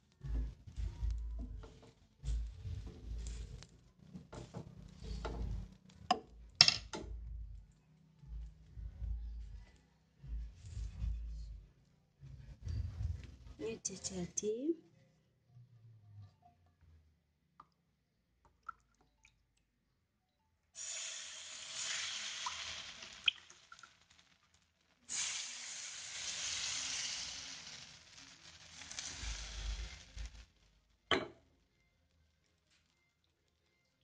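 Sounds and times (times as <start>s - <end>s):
batter sizzling in frying pan: 20.8s - 31.1s.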